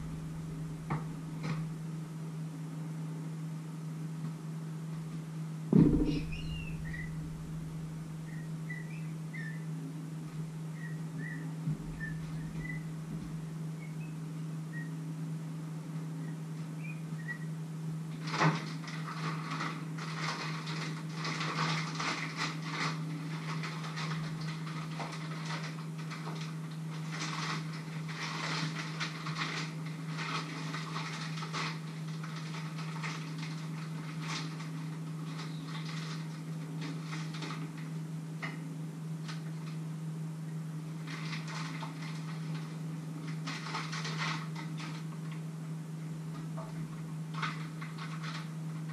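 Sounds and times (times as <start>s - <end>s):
steady low hum: 0.0s - 18.2s
wrapper crinkling and rustling: 18.2s - 37.9s, 41.0s - 45.4s, 47.3s - 48.9s.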